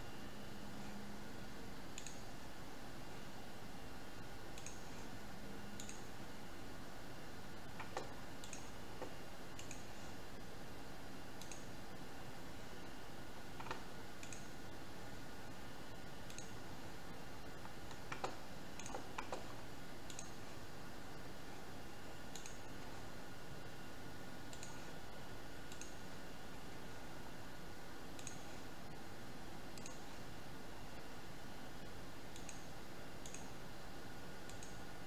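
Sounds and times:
computer mouse clicks: 1.9 - 2.3, 4.5 - 5.1, 5.7 - 6.2, 7.6 - 10.2, 11.4 - 11.8, 13.6 - 14.6, 16.2 - 16.6, 17.5 - 20.4, 22.2 - 23.0, 24.5 - 25.0, 25.7 - 26.1, 28.1 - 28.7, 29.7 - 30.2, 31.8 - 33.6, 34.4 - 34.9.

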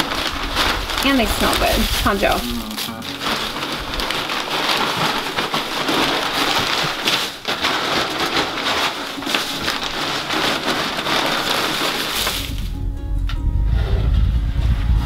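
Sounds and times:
wood chips pouring: 0.0 - 12.8.

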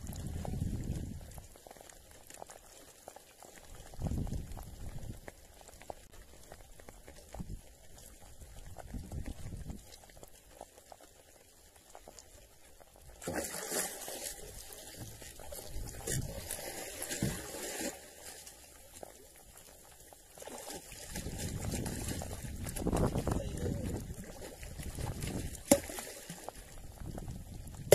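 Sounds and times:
water splashing against boat: 13.1 - 27.9
fish thrashing at surface: 13.2 - 15.1.

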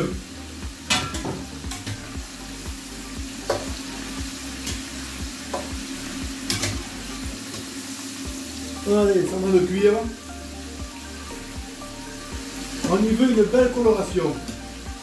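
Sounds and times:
seafood deep-frying in oil: 0.0 - 15.0.

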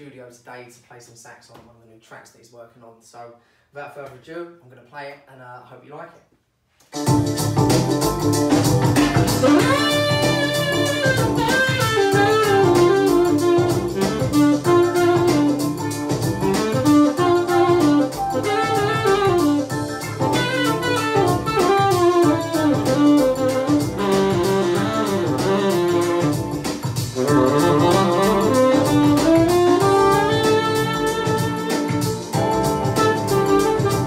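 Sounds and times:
drum machine beat: 6.9 - 34.0
bass: 7.0 - 34.0
tenor saxophone funk line: 7.0 - 34.0.

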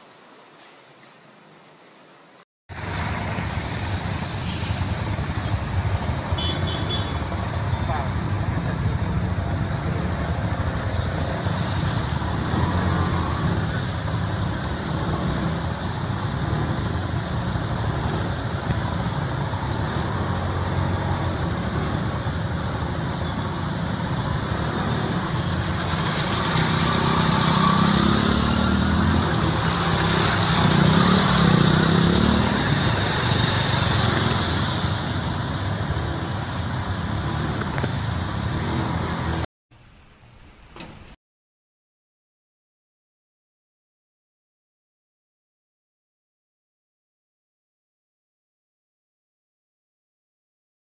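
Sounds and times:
water splashing around wheels: 2.7 - 8.9, 10.6 - 39.4.

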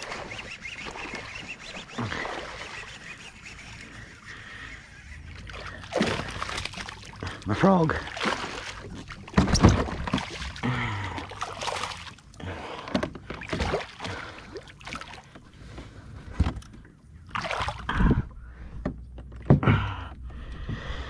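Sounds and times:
fish splashing and thrashing in water: 0.0 - 15.7, 16.4 - 18.3.

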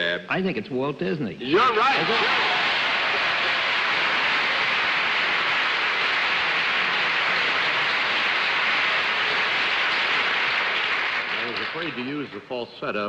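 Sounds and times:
audience applauding: 1.5 - 12.5.

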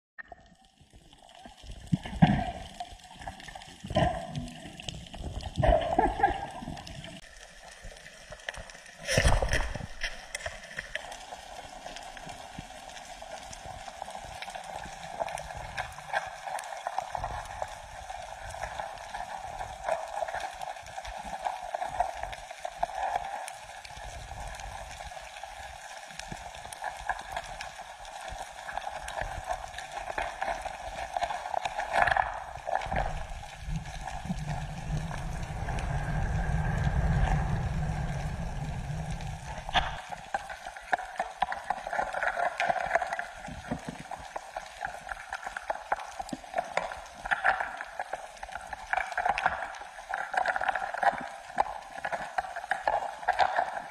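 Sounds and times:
faint crackling ticks: 0.2 - 53.9
water rushing: 32.4 - 43.1.

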